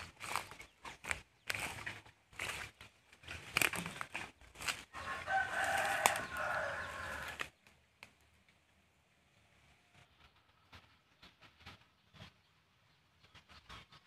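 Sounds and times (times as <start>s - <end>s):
footsteps through dry undergrowth: 0.0s - 7.6s
rooster crowing: 4.6s - 7.5s.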